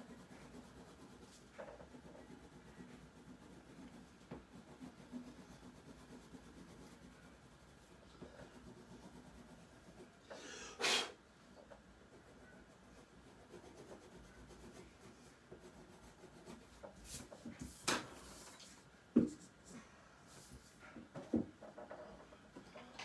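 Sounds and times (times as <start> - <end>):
pencil scratching on paper: 0.0 - 10.3, 12.0 - 18.5.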